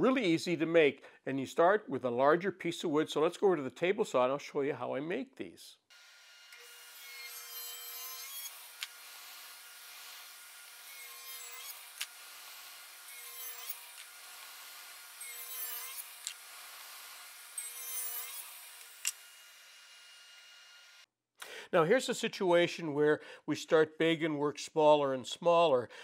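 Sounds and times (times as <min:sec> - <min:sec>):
table saw cutting wood: 0:05.9 - 0:21.1.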